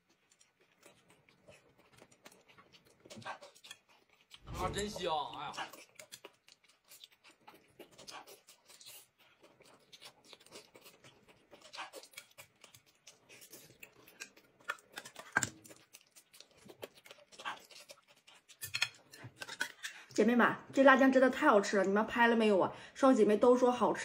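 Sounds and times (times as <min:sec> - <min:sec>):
chewing and slurping: 0:00.0 - 0:20.2
chopsticks clicking on a plate: 0:18.6 - 0:19.8.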